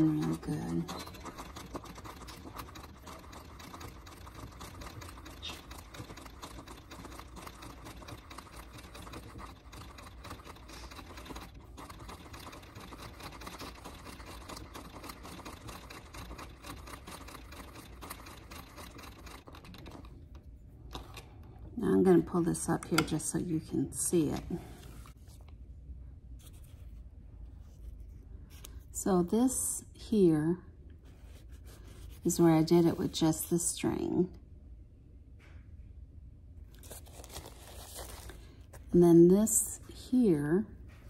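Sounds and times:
sewing machine clicking: 0.0s - 20.2s.

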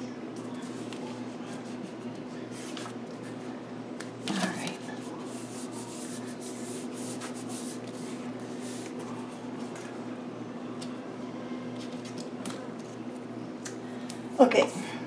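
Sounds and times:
hands rubbing paper: 4.6s - 9.0s.

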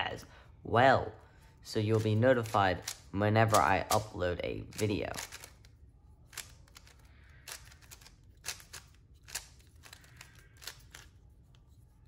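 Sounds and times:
plastic puzzle cube clacks: 1.9s - 5.7s, 6.3s - 11.2s.

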